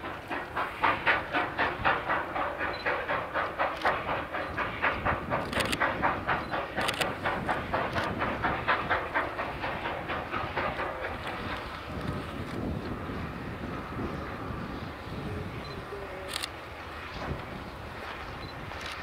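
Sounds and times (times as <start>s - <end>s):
steam hiss: 0.0s - 19.0s
steam locomotive chuffing: 0.0s - 19.0s
sharp clicks: 2.4s - 8.2s.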